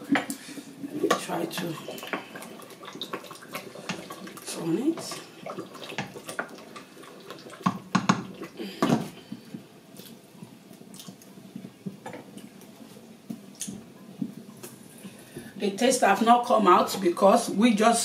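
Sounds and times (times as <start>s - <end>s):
wooden spoon stirring stew: 0.0s - 17.5s
stew sputtering and popping: 0.9s - 12.6s
spoon knocking against pot: 7.7s - 8.2s.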